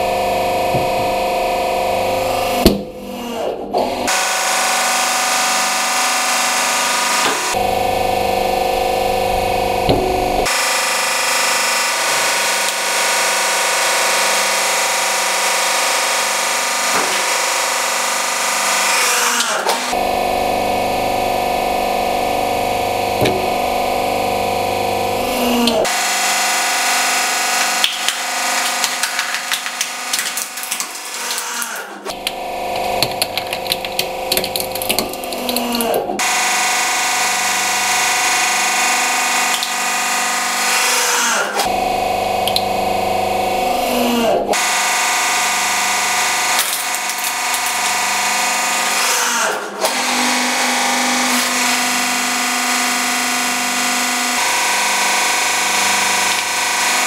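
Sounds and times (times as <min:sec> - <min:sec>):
hydraulic press hum: 0:00.0 - 0:30.1
plastic cracking and snapping: 0:27.8 - 0:36.0.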